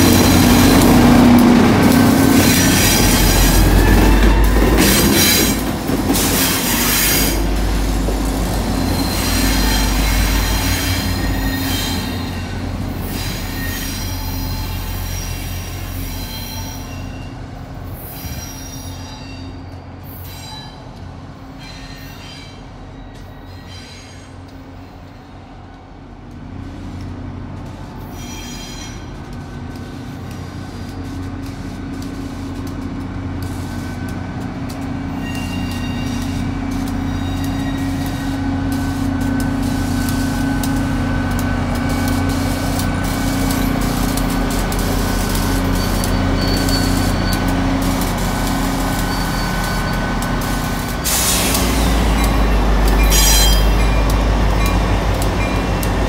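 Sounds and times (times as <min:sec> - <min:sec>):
diesel locomotive engine hum: 0:00.0 - 0:21.6, 0:24.4 - 0:56.0
train wheel squeal: 0:02.0 - 0:07.5, 0:08.7 - 0:25.4, 0:28.0 - 0:29.3, 0:33.5 - 0:56.0.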